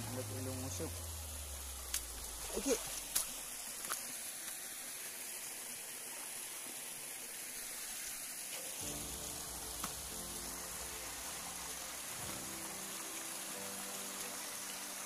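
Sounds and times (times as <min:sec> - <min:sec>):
background music sustained tones: 0:00.0 - 0:02.6, 0:08.8 - 0:15.0
stream flowing over rocks: 0:00.0 - 0:15.0.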